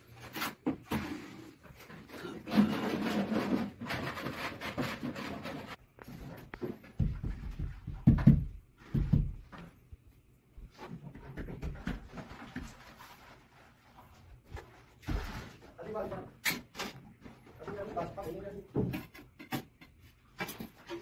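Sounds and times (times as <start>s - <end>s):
trowel scraping adhesive on tile: 2.2s - 5.8s
dull thumps of tile patted: 6.8s - 9.7s.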